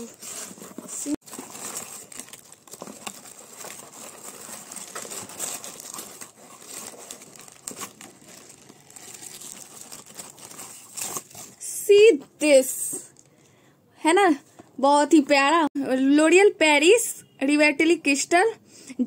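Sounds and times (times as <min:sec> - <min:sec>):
paper wrap crinkling and tearing: 0:00.0 - 0:11.6.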